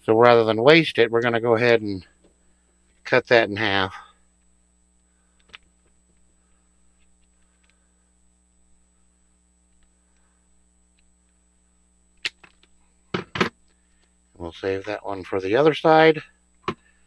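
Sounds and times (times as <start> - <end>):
small ticks: 4.4 - 7.8.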